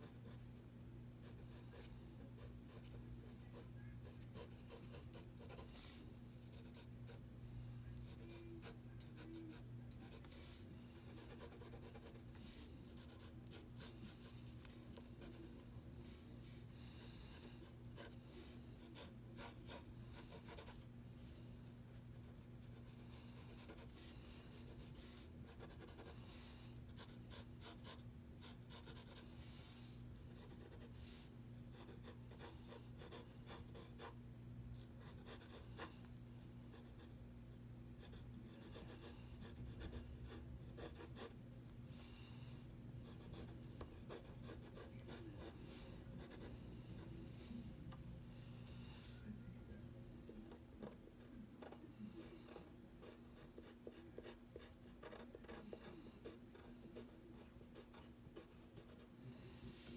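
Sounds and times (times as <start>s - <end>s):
pencil scratching on paper: 1.2s - 7.2s, 8.0s - 29.3s, 30.2s - 34.2s, 35.0s - 35.9s, 38.0s - 41.4s, 43.0s - 47.1s, 51.6s - 59.1s.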